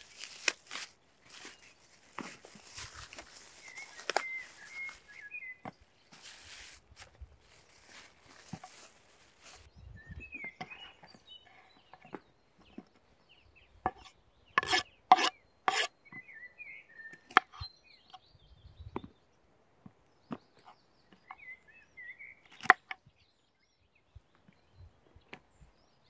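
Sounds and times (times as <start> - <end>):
plastic bag rustling: 0.0 - 5.3, 6.1 - 9.7
small birds chirping: 0.0 - 26.0.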